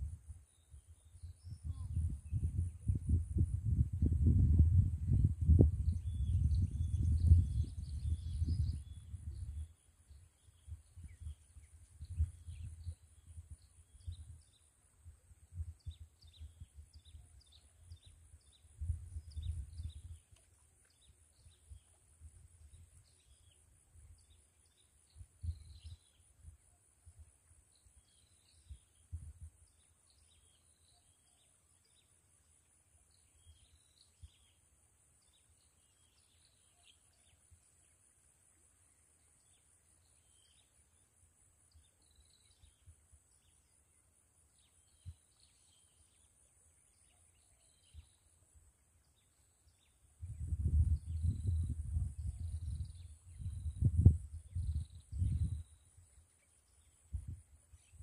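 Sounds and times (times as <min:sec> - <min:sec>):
wind gusting on microphone: 0:00.0 - 0:09.7, 0:10.6 - 0:14.4, 0:18.8 - 0:20.2, 0:50.2 - 0:55.8, 0:57.1 - 0:58.0
high pulsing insect buzz: 0:20.9 - 0:58.0
small birds chirping: 0:35.2 - 0:48.4, 0:49.0 - 0:58.0.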